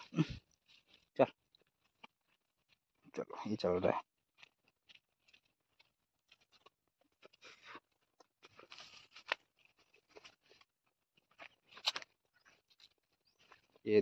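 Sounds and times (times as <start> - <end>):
small clicks and rustles: 4.3 - 14.0.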